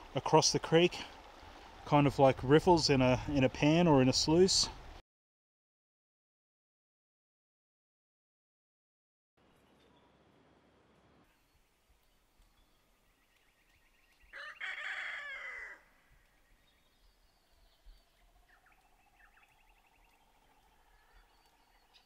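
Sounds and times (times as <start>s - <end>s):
rooster crowing: 14.3s - 16.0s.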